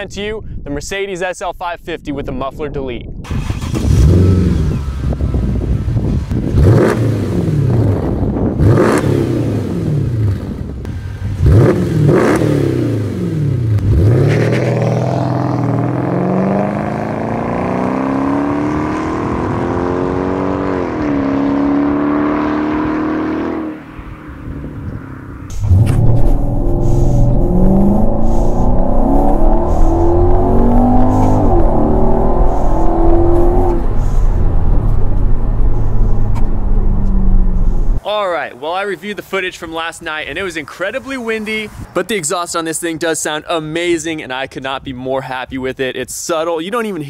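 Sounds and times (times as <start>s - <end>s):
car accelerating: 3.4s - 38.0s
car engine revving: 3.4s - 38.0s.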